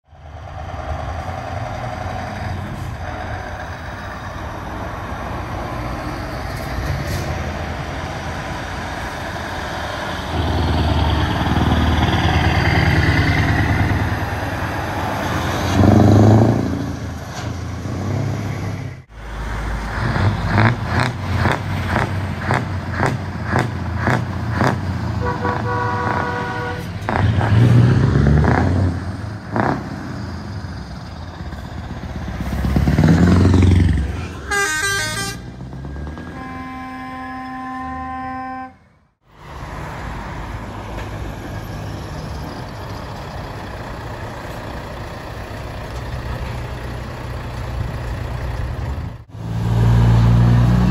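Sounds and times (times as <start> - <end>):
heavy trucks driving past: 0.1 - 50.9
multi-tone truck horn: 25.2 - 27.0, 34.2 - 35.6, 36.2 - 39.1
short horn: 25.2 - 27.0, 34.3 - 35.5, 36.2 - 39.0.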